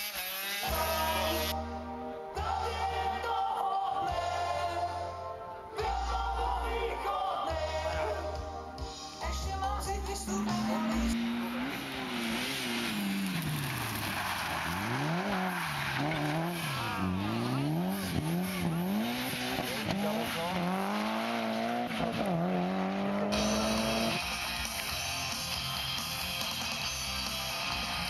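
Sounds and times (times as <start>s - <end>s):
race car engine revving: 9.9s - 24.9s.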